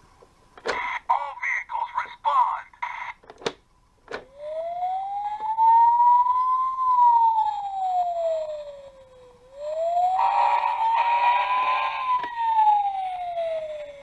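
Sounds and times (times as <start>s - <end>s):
toy fire engine siren wail: 4.3s - 14.0s.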